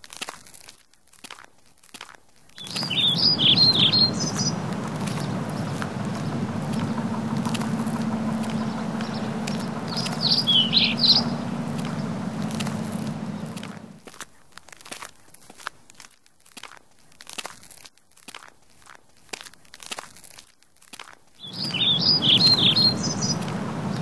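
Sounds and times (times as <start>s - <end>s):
birds chirping: 2.6s - 14.0s, 21.4s - 24.0s
steady low background noise: 2.6s - 14.0s, 21.4s - 24.0s.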